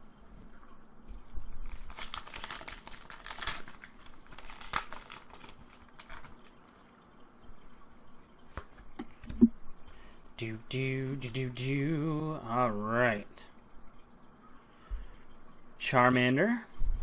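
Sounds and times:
foil wrapper crinkling and tearing: 1.7s - 6.6s.

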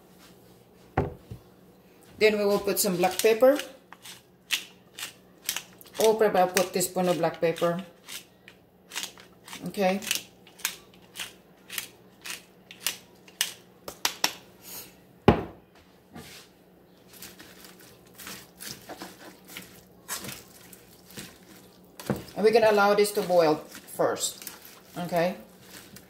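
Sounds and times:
pepper mill grinding: 2.3s - 13.6s, 17.1s - 26.0s.

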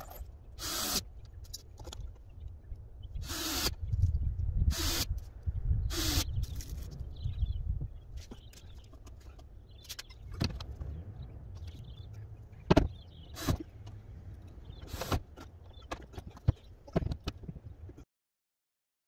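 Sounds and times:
low steady rumble: 0.0s - 17.9s
knocks of wood and tools: 12.6s - 13.7s.

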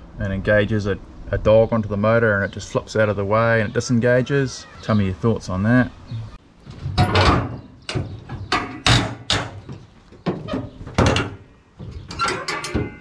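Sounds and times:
sharp metal clunks: 6.9s - 13.0s.

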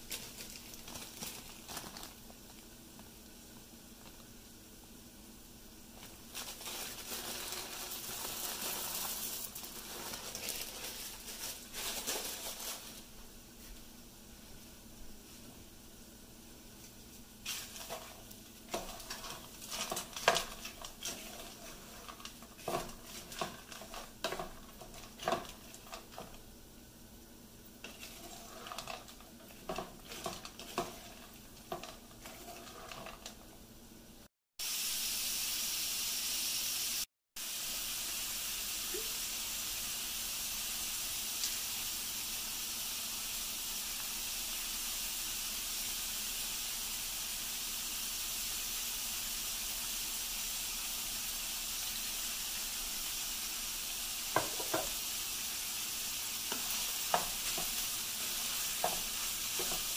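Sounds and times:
food sizzling: 0.0s - 59.9s
spatula scraping frying pan: 17.5s - 26.4s, 27.8s - 33.5s, 56.4s - 59.9s.

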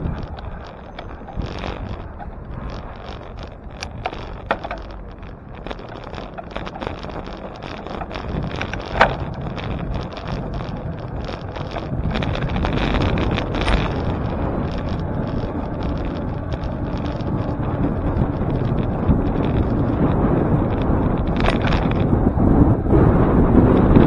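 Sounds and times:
bicycle rattles and clicks: 0.0s - 24.0s
bicycle road rumble: 0.0s - 24.0s
wind on microphone: 0.0s - 24.0s.

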